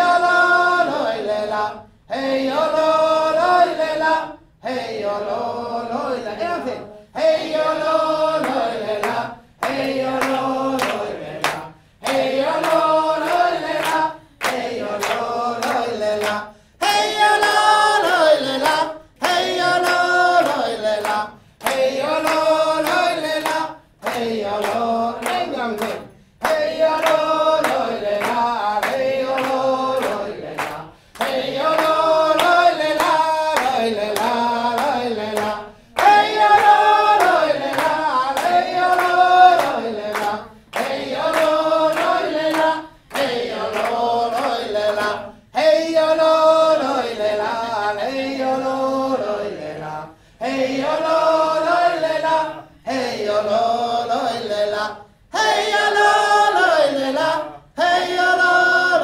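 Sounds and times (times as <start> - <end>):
group singing in unison: 0.0 - 59.0
hand claps: 7.6 - 46.6.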